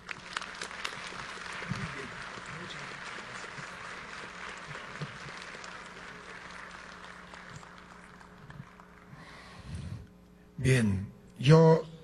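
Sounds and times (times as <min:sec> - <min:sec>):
audience applauding: 0:00.0 - 0:09.4.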